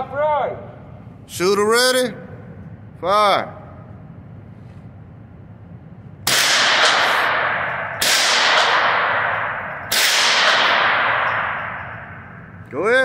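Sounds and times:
echoing rifle shots: 6.2 - 12.7.

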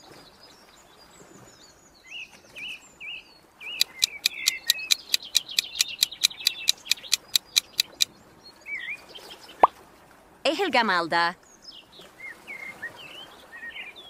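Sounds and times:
birds chirping: 3.7 - 8.1
fast regular timer ticking: 3.8 - 8.1.

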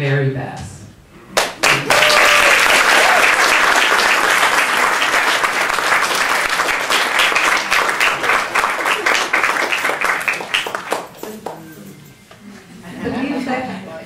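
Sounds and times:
audience applauding: 1.4 - 11.8.

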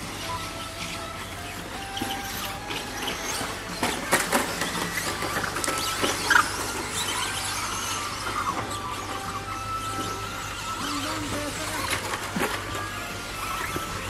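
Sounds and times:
electric motors whining: 0.0 - 14.0
plastic clacks and knocks: 2.0 - 7.0.

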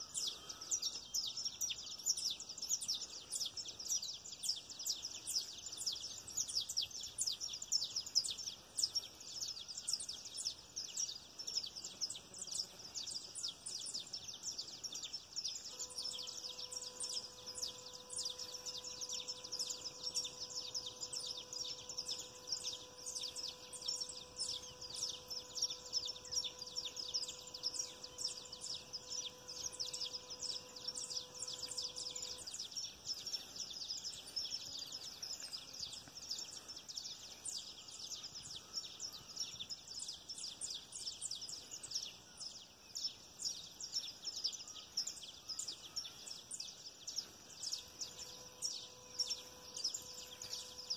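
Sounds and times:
faint steady hum: 0.0 - 50.9
high-pitched chirping chorus: 0.0 - 50.9.

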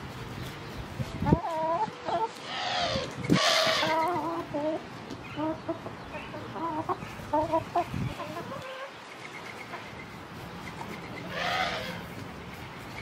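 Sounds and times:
chickens clucking: 0.4 - 13.0.

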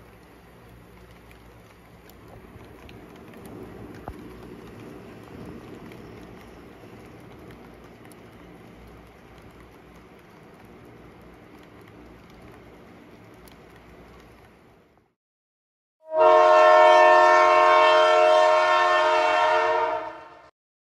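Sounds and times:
model trains running: 0.0 - 15.1
locomotive air horn chord: 16.0 - 20.5.

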